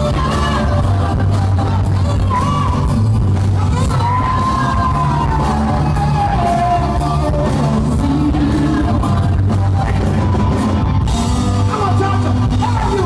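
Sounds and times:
person singing: 0:00.0 - 0:10.4
live rock band playing: 0:00.0 - 0:13.0.

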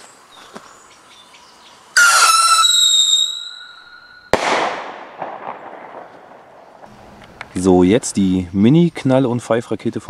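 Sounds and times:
shrill rocket whistle: 0:02.0 - 0:04.5
sharp firework bang: 0:04.3 - 0:06.9.

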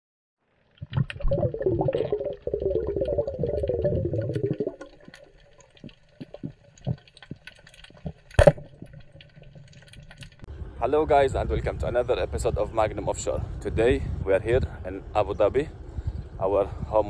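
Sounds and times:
water bubbling and gurgling: 0:00.7 - 0:10.5.

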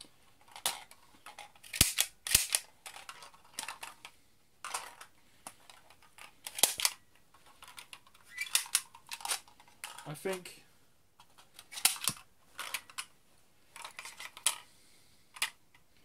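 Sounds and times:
toy pistol plastic clicks: 0:01.6 - 0:02.7, 0:06.5 - 0:07.0, 0:08.3 - 0:09.4, 0:11.6 - 0:13.1.

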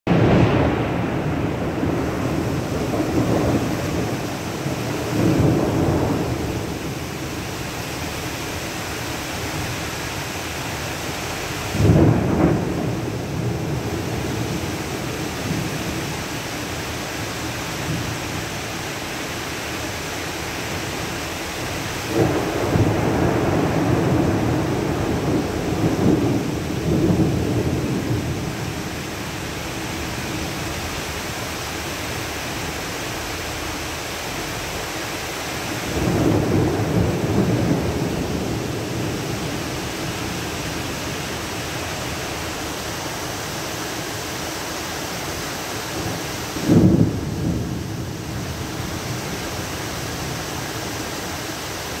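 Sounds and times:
heavy rain on trees and ground: 0:00.1 - 0:52.0.

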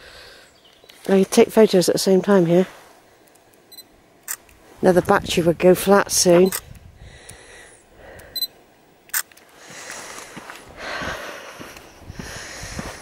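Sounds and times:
camera electronic beep: 0:03.7 - 0:04.4, 0:06.4 - 0:06.6, 0:08.3 - 0:08.5
camera shutter click: 0:04.2 - 0:04.5
footsteps on dirt: 0:09.4 - 0:13.0.

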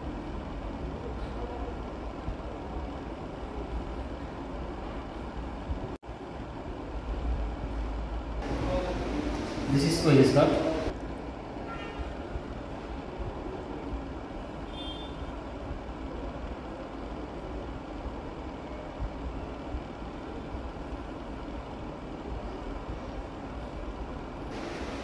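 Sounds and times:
low rumbling hum: 0:06.8 - 0:16.2.

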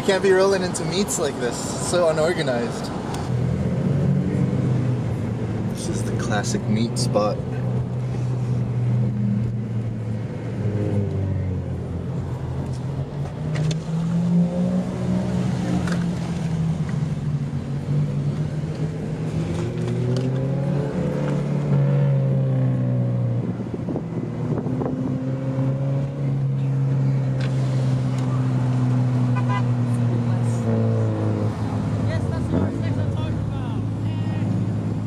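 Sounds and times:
car engines running at low speed: 0:00.0 - 0:35.0.

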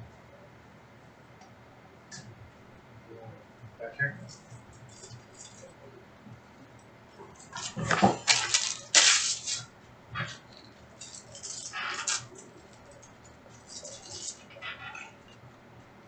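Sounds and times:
card packs crinkling and rustling: 0:07.4 - 0:09.6.

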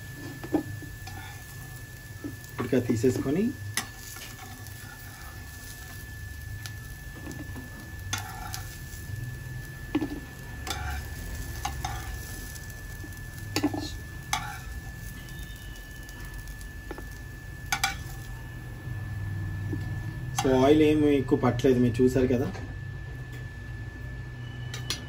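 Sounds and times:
patties sizzling in oil: 0:00.0 - 0:22.4
spatula scraping and tapping pan: 0:07.2 - 0:08.7, 0:11.6 - 0:12.2, 0:13.5 - 0:14.7, 0:17.7 - 0:18.1.

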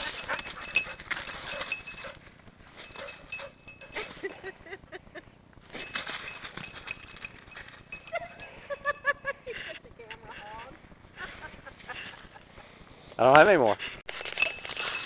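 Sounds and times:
dog collar bell jingling: 0:00.0 - 0:04.3, 0:05.7 - 0:09.0.

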